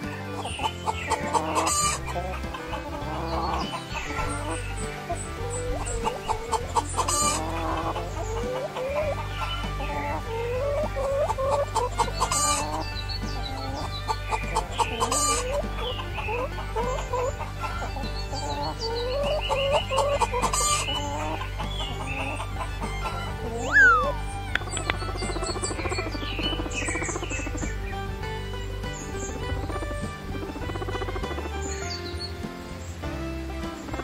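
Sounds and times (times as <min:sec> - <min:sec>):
hens clucking: 0:00.0 - 0:34.0
sharp clicks: 0:24.5 - 0:27.8.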